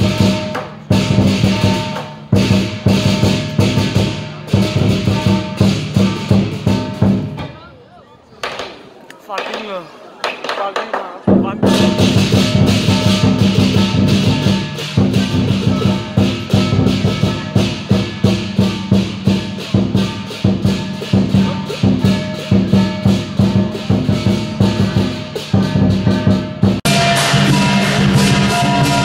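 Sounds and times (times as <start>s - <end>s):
cymbals clashing: 0.0s - 7.6s, 11.4s - 29.0s
drum beating rapidly: 0.0s - 7.6s, 8.4s - 29.0s
ringing metallic tones: 11.8s - 29.0s.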